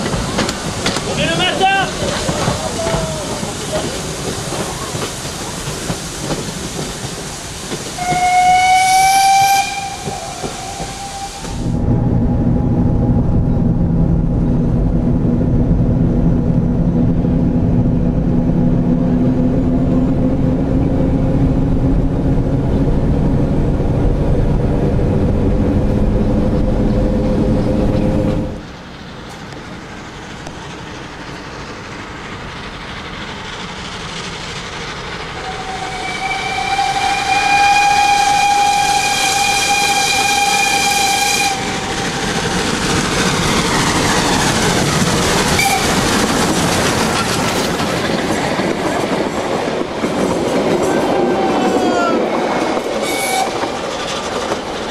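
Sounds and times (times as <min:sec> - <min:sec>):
steam locomotive running noise: 0:00.0 - 0:54.9
train carriages rumbling past: 0:00.0 - 0:54.9
steam locomotive whistle: 0:08.0 - 0:11.7, 0:35.4 - 0:42.3, 0:45.6 - 0:46.0, 0:53.0 - 0:53.6.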